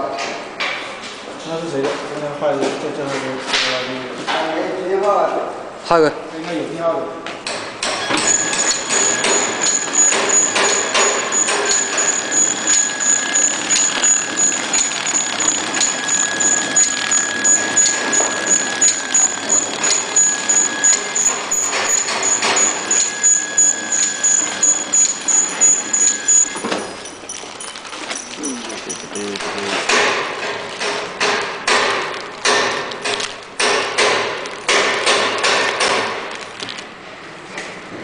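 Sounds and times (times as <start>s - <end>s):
packing machine ticking: 8.0s - 30.6s, 31.2s - 36.9s.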